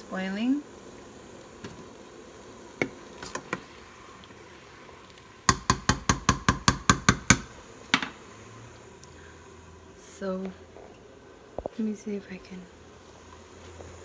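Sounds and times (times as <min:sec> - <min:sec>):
wooden spoon knocking on pot: 0:05.5 - 0:08.1.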